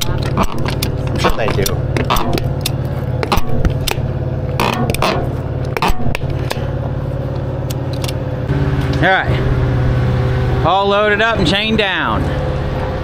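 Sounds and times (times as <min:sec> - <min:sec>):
metal clanks and scrapes: 0:00.0 - 0:08.2
engine idling: 0:00.0 - 0:13.0.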